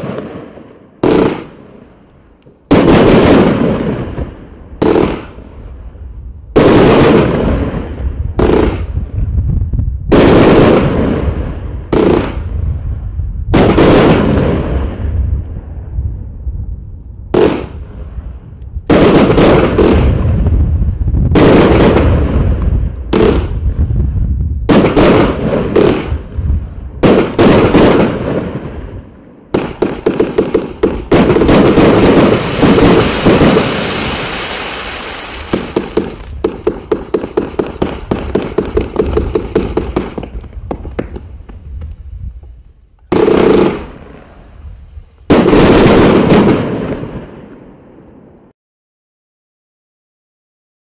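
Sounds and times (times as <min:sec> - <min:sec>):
firework crackling: 0:17.3 - 0:29.0, 0:29.6 - 0:48.3
firework cake shots: 0:29.6 - 0:41.6.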